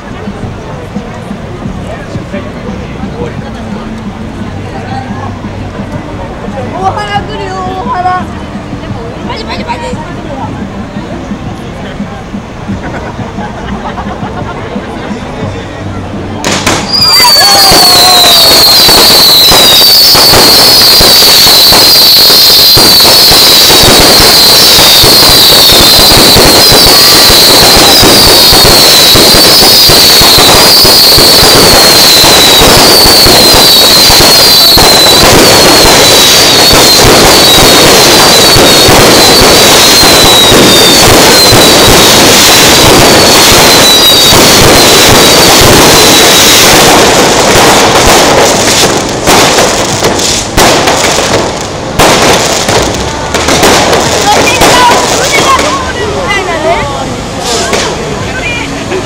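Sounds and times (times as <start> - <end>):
fireworks crackling: 16.3 - 56.7, 57.4 - 58.2
high falling whistles: 16.8 - 40.4.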